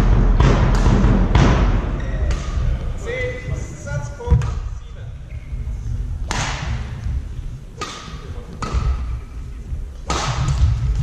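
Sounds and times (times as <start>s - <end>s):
low thuds: 0.0s - 11.0s
racket hitting shuttlecock: 6.3s - 6.9s, 7.8s - 9.2s, 10.0s - 11.0s.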